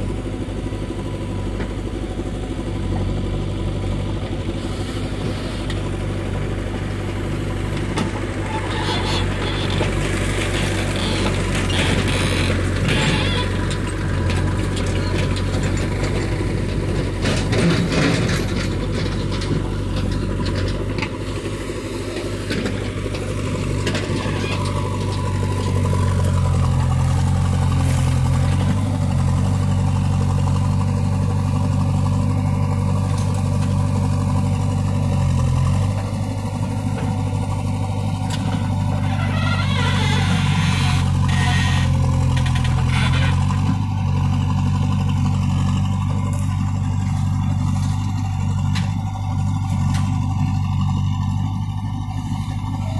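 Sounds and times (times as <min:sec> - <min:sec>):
diesel engine under load: 0:00.0 - 0:52.9
bucket scraping and clattering: 0:23.7 - 0:28.9.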